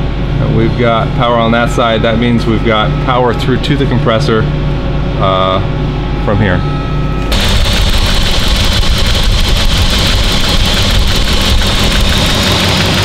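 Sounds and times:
air-conditioning compressor hiss: 0.0s - 13.0s
car engine idling: 7.3s - 13.0s.

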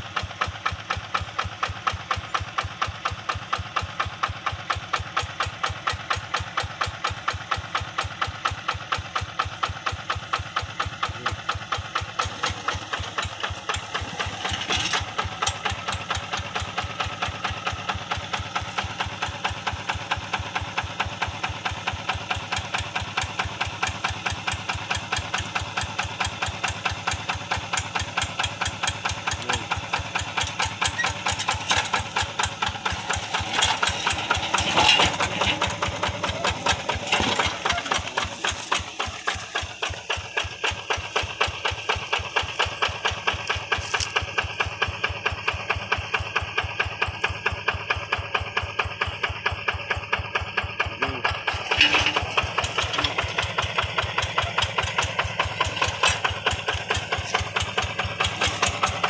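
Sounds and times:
diesel hand tractor chugging: 0.0s - 59.0s.

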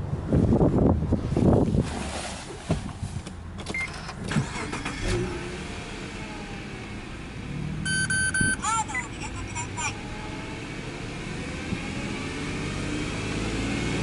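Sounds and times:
car engine cranking and idling: 3.2s - 14.0s.

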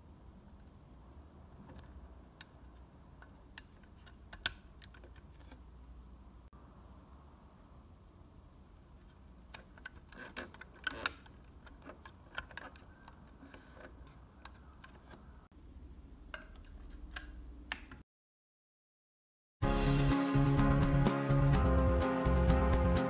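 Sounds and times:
hard plastic clicks and taps: 3.2s - 5.5s.

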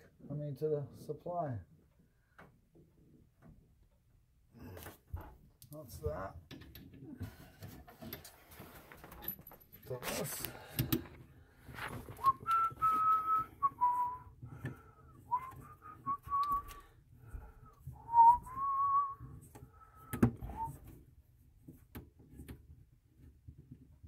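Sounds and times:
person whistling slow tune: 12.2s - 14.4s, 15.1s - 16.9s, 18.0s - 20.8s.

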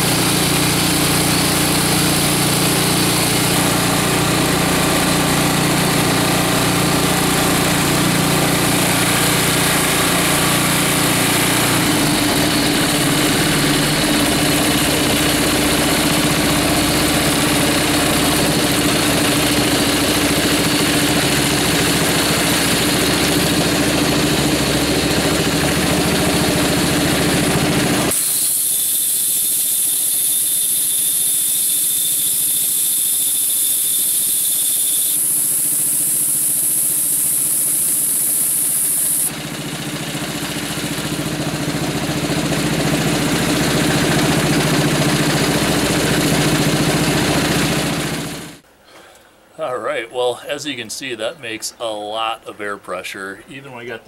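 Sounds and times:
small engine running compressor: 0.0s - 49.2s
relief valve venting air: 28.1s - 39.3s.

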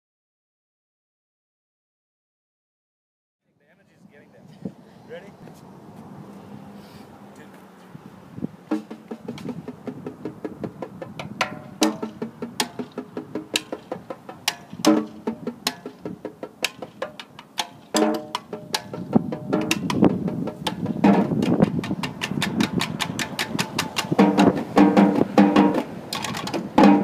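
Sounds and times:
snare drums played with sticks: 8.7s - 27.0s.

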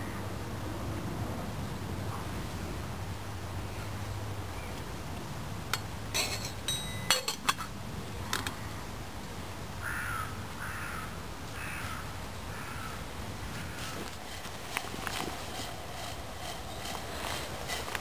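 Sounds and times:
metal handle clinking on pot: 5.8s - 7.7s.

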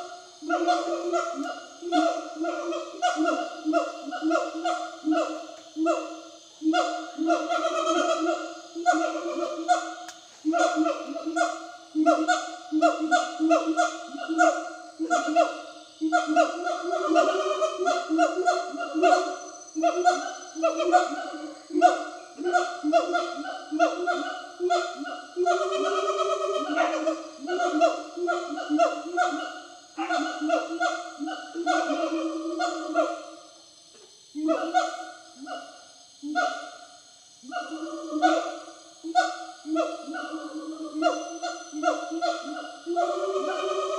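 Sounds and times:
gibbons hooting: 0.0s - 33.5s, 34.4s - 36.8s, 37.4s - 43.9s.

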